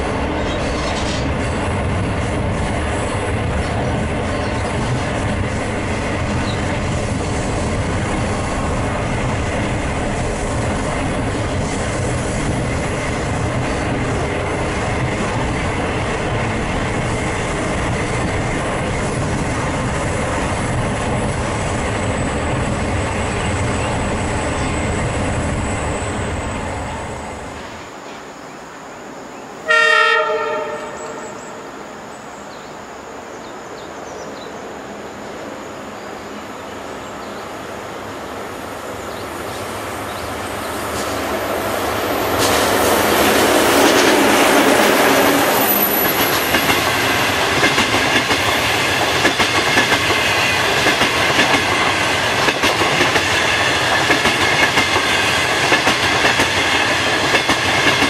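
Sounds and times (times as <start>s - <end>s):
train rumble: 0.0s - 58.0s
train horn: 29.6s - 31.9s
wheels clicking over rail joints: 42.3s - 58.0s.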